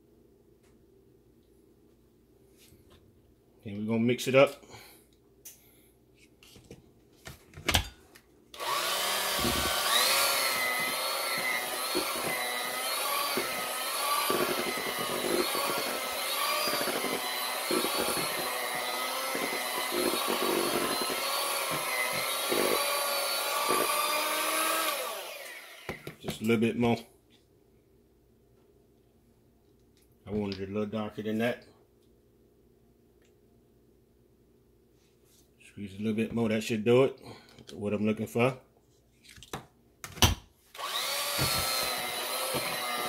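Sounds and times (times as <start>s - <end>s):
electric mixer whining: 8.6s - 26.2s, 40.8s - 43.0s.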